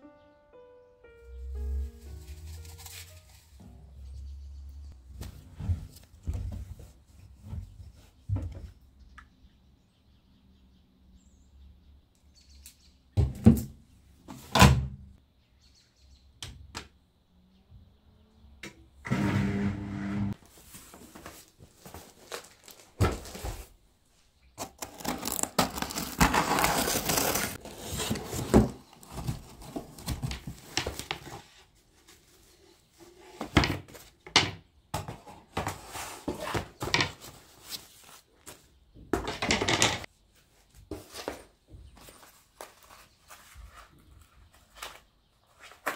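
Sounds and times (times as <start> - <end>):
plastic wrapping crinkling: 2.0 - 3.6, 20.6 - 23.6, 24.6 - 31.2.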